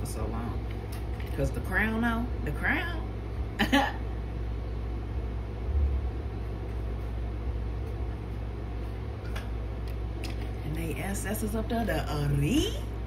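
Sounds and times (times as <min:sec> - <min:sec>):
low rumble: 0:01.8 - 0:09.9.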